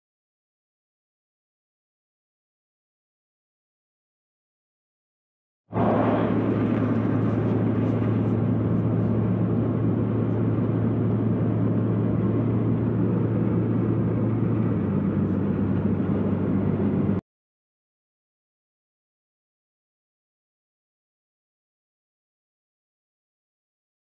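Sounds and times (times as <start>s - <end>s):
road noise: 5.7s - 17.2s
vehicle engine drone: 5.7s - 17.2s.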